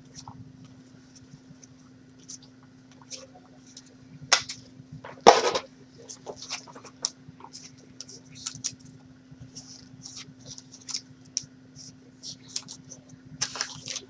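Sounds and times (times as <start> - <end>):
trading cards tapping and rustling: 4.4 - 14.0
plastic packaging rustling: 12.4 - 14.0.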